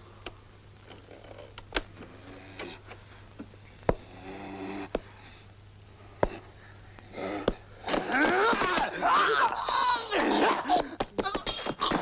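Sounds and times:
man grunting: 7.1 - 10.9.

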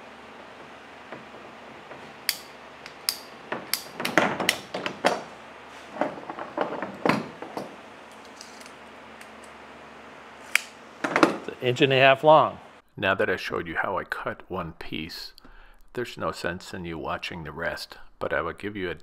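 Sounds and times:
pipe cutter clicking and crunching: 2.2 - 5.2.

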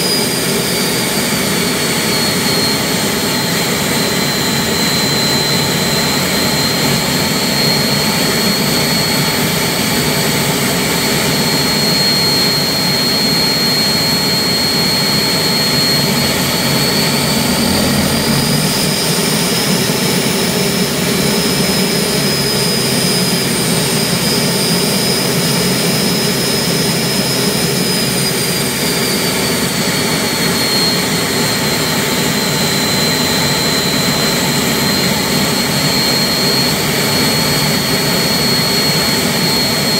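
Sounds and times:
gas turbine engine whine: 0.0 - 39.9.

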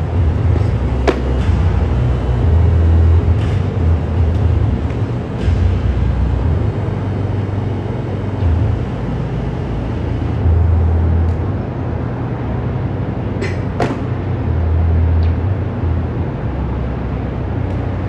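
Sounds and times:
low rumbling background noise: 0.0 - 18.0
sharp knocks: 1.0 - 1.6, 13.4 - 14.1.

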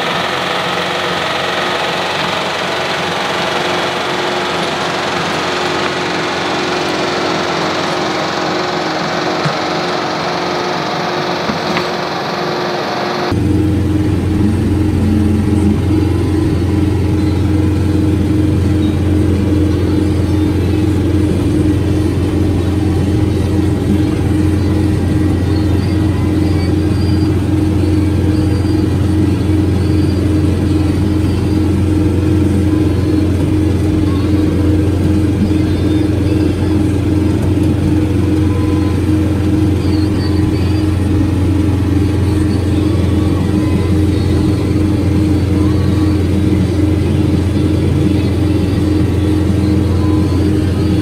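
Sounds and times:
rototiller through soil: 0.0 - 51.0
tractor diesel engine under load: 0.0 - 51.0.

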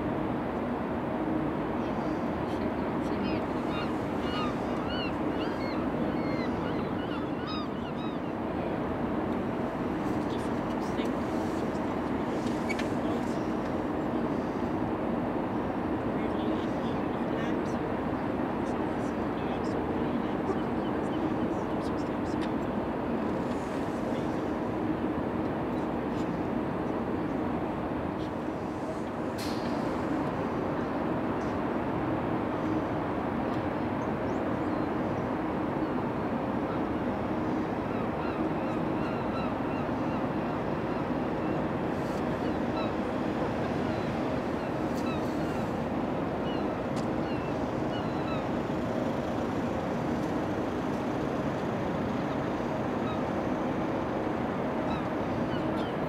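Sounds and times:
distant machinery rumble: 19.3 - 56.0.

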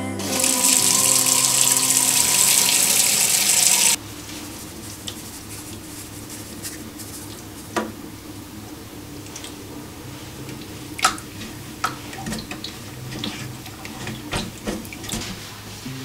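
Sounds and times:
tap water running into basin: 0.2 - 4.0, 10.5 - 15.4.

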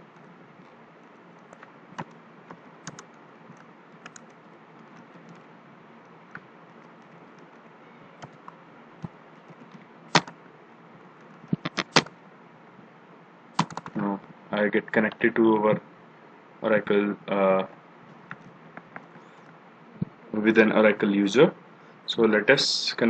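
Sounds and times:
computer keyboard typing: 0.0 - 5.5, 6.3 - 10.4, 11.2 - 12.1, 13.6 - 14.0
faint steady hiss: 0.0 - 23.0.

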